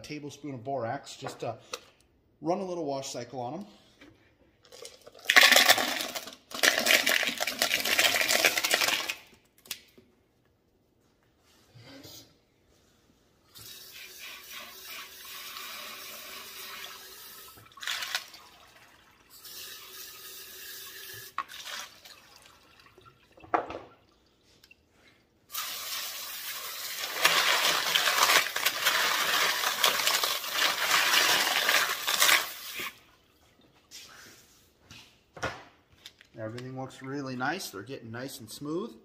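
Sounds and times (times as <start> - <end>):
tap water running: 13.5 - 24.7, 25.5 - 33.1.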